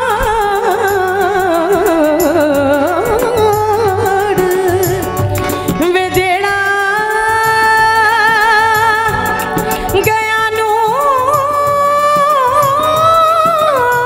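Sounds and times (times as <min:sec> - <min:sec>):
harmonium: 0:00.0 - 0:14.0
woman singing: 0:00.0 - 0:14.0.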